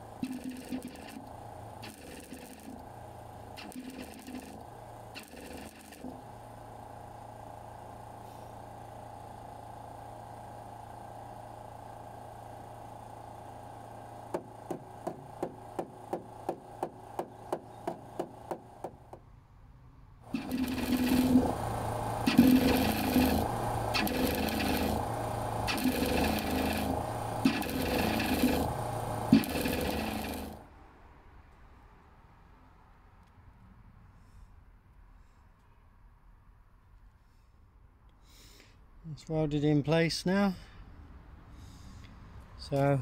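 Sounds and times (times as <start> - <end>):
welder crackling: 0.0 - 6.5, 20.3 - 30.7.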